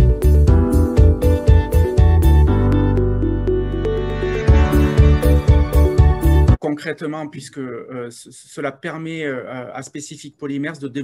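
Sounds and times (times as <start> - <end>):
synth music with steady beat: 0.0 - 6.6
held bass note: 1.8 - 6.6.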